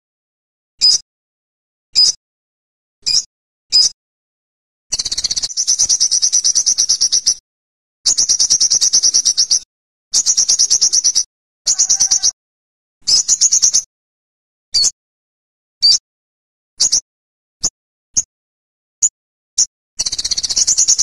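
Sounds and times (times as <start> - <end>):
bird chips: 10.2 - 12.3
bird trills: 10.2 - 12.4.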